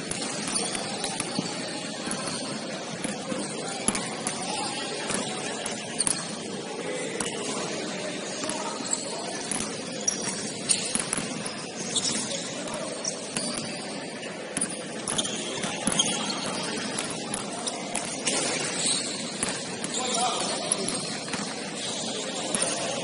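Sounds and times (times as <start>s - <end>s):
gym background noise: 0.0s - 23.0s
sneakers squeaking on floor: 0.0s - 23.0s
basketball bouncing: 0.1s - 4.4s, 9.5s - 12.4s, 14.6s - 21.6s.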